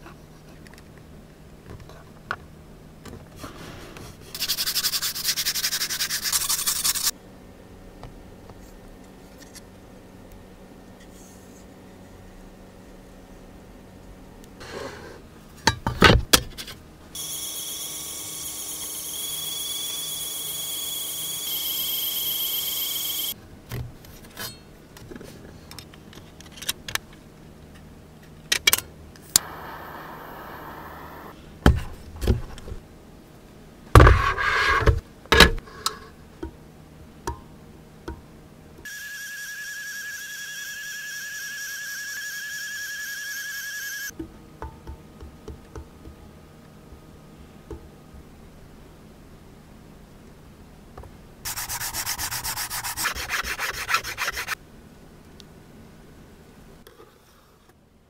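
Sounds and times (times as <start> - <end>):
printing pen motor whine: 17.2 - 23.4, 38.9 - 44.1.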